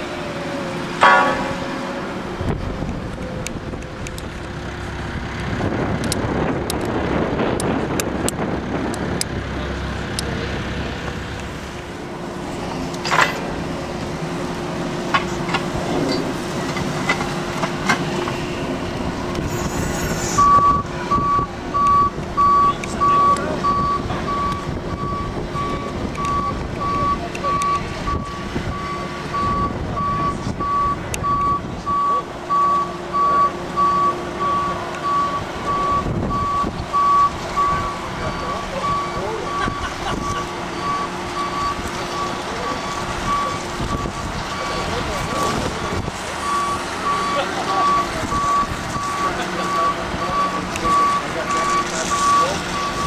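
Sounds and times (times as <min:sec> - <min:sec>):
forklift engine hum: 0:00.0 - 0:53.0
reversing alarm beeping: 0:14.5 - 0:53.0.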